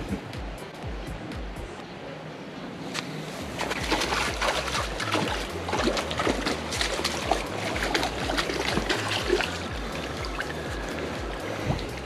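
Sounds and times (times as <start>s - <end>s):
running water trickling: 3.0s - 12.0s
fish splashing at water surface: 3.6s - 12.0s.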